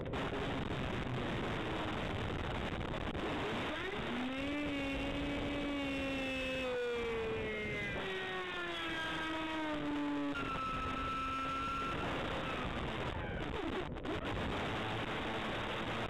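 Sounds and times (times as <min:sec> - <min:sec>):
rc plane motor whine: 0:03.6 - 0:12.6.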